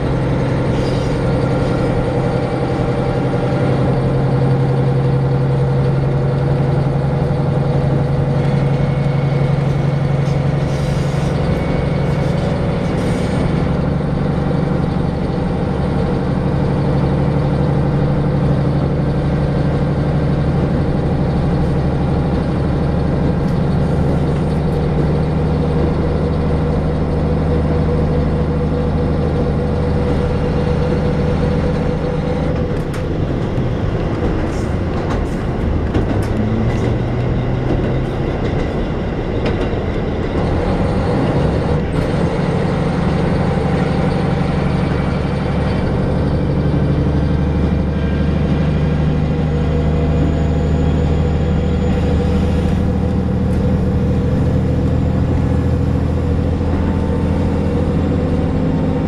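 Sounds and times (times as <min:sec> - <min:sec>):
diesel railcar engine drone: 0:00.0 - 0:59.0
wheels rumbling on rails: 0:00.0 - 0:59.0
sharp rail clicks: 0:31.5 - 0:44.6.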